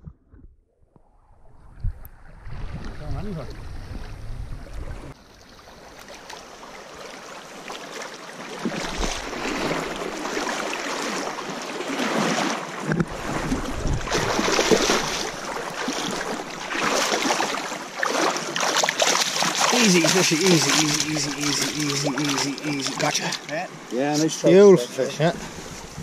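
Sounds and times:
creek water rushing: 5.2 - 25.9
fish thrashing in water: 8.6 - 23.4.

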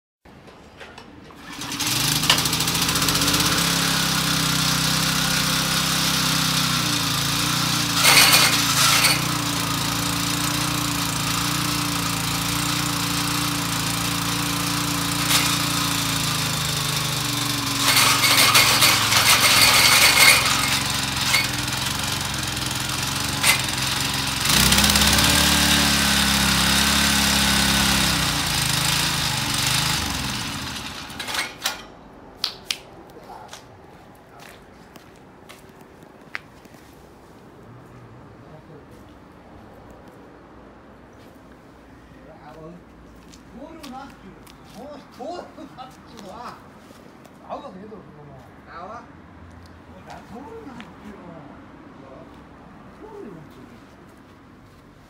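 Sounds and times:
tiller engine running: 1.3 - 32.0
harsh clatter: 1.4 - 32.0.

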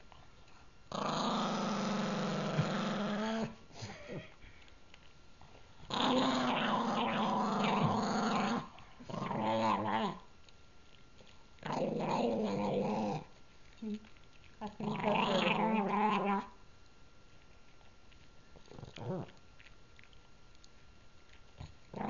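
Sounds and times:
dog growling: 0.9 - 4.3, 5.8 - 10.3, 11.6 - 14.0, 14.6 - 16.6, 18.6 - 19.4, 21.6 - 22.0.

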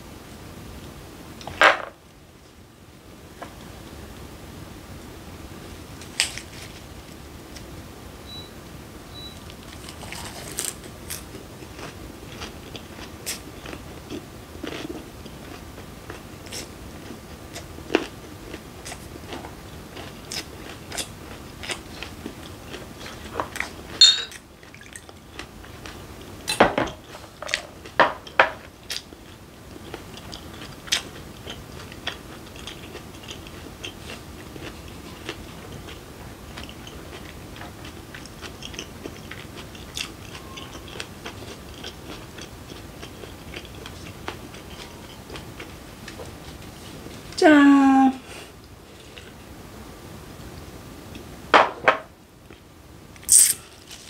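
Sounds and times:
chewing and crunching lettuce: 9.4 - 47.3, 53.2 - 54.0.

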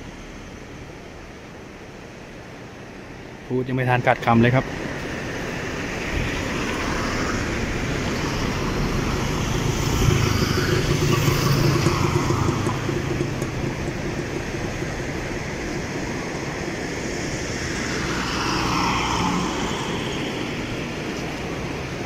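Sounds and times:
traffic noise: 0.0 - 22.0
car passing by: 4.6 - 22.0.

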